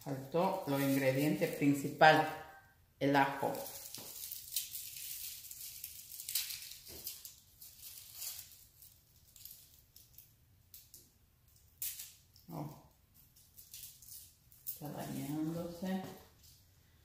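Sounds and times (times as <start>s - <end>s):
garlic skins crackling: 0.0s - 2.3s, 3.4s - 10.9s.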